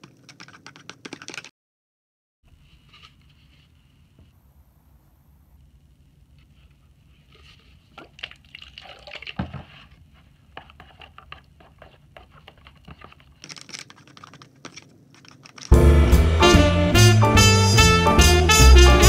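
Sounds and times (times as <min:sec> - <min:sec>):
slime squelching while stirred: 0:06.3 - 0:15.7.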